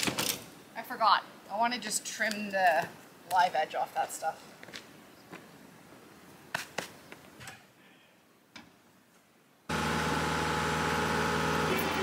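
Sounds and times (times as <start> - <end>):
diesel loader engine running: 9.7 - 12.0.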